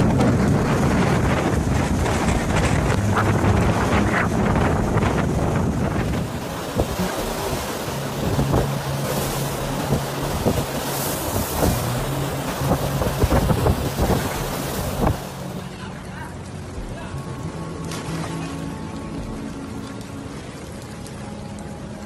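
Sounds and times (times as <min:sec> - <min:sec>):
wind buffeting microphone: 0:00.0 - 0:15.6
surf crashing and washing: 0:00.0 - 0:22.0.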